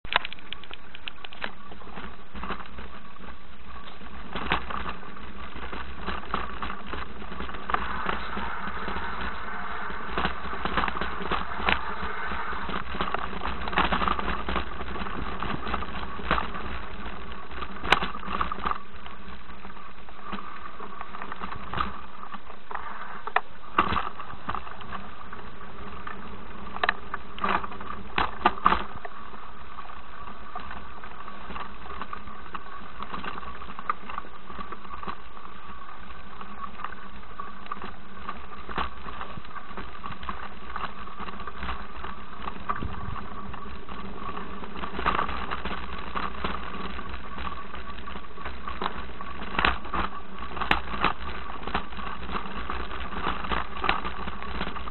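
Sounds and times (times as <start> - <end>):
bike knocks and rattles: 0.0 - 54.9
steady low rumble: 0.0 - 54.9.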